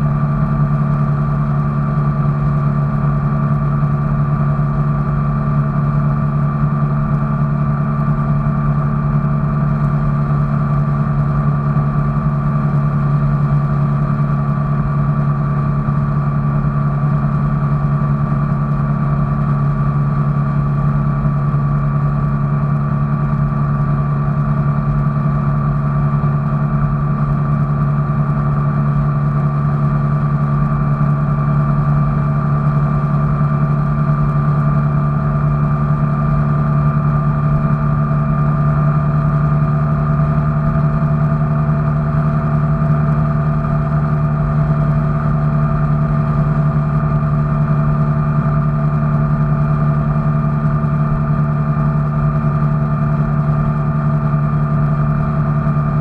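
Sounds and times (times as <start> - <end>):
vehicle engine drone: 0.0 - 56.0.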